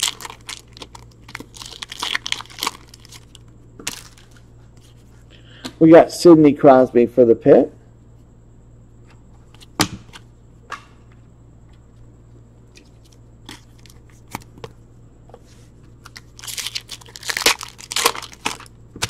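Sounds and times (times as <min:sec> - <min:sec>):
wrapper crinkling and tearing: 0:00.0 - 0:04.4, 0:16.0 - 0:18.8.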